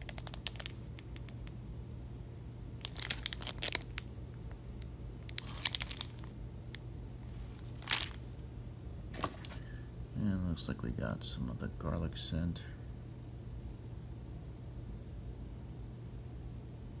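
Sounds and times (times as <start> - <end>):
plastic package crinkling: 0.0 - 1.5, 2.8 - 4.1, 5.2 - 6.3, 7.5 - 8.3.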